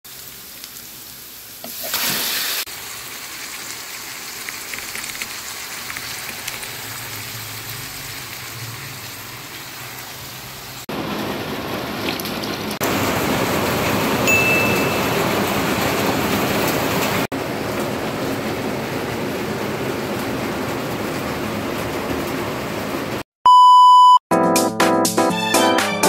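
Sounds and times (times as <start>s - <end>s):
oil sizzling in a frying pan: 0.1s - 11.1s.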